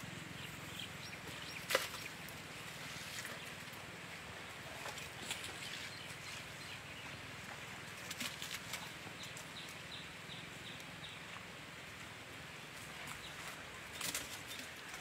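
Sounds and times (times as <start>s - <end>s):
bird chirping: 0.3s - 2.2s.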